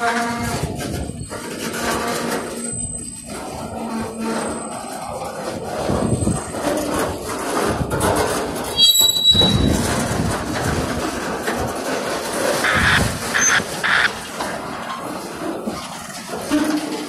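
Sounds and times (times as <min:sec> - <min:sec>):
high wheel squeal: 0:00.0 - 0:07.0, 0:08.7 - 0:10.2, 0:12.6 - 0:17.0
train wheels rumbling on rails: 0:00.0 - 0:17.0.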